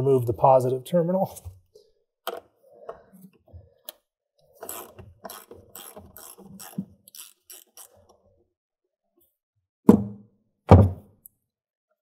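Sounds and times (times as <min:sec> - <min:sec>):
socket ratchet clicking: 0:04.6 - 0:08.0.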